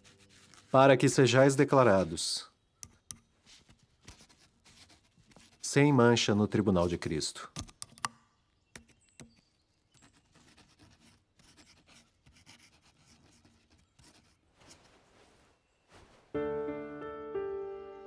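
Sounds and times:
quill pen scratching on paper: 0:00.0 - 0:00.8, 0:03.5 - 0:05.7, 0:09.9 - 0:14.8
soft music with sustained chords: 0:16.4 - 0:18.0.

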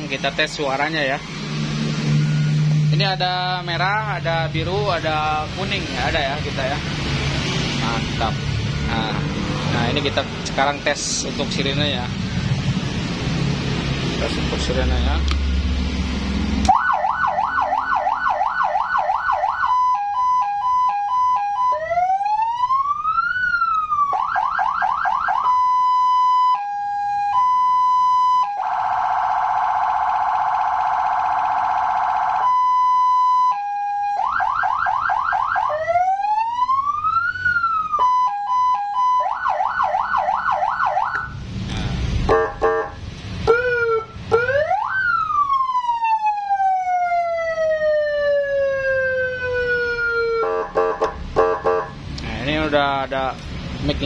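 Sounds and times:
electronic siren tones: 0:01.4 - 0:03.0, 0:16.6 - 0:41.4.

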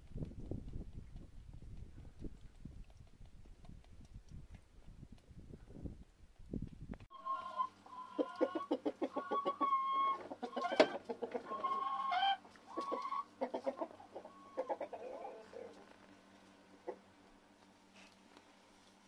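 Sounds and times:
hens clucking: 0:07.1 - 0:15.8.

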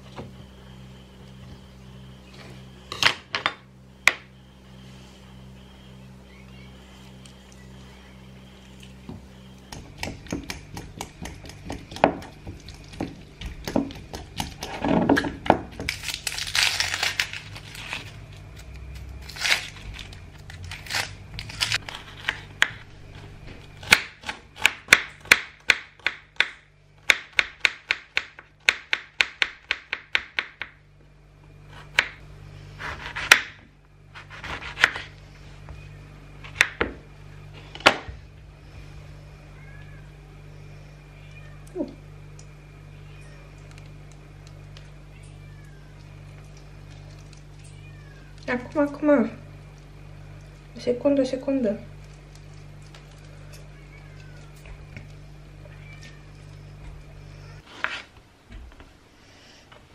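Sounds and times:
knife chopping on wooden board: 0:09.7 - 0:15.7.

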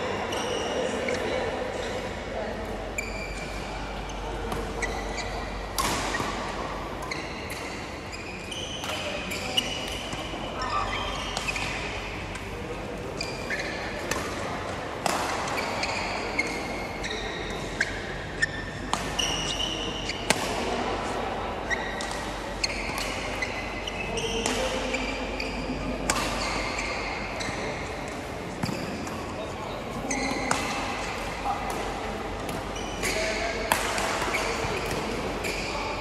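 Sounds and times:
shoes squeaking on court: 0:02.8 - 0:12.3, 0:13.2 - 0:14.2, 0:15.6 - 0:20.3, 0:21.7 - 0:29.2, 0:30.0 - 0:31.3, 0:32.5 - 0:36.0
rackets striking shuttlecock: 0:32.5 - 0:35.7.

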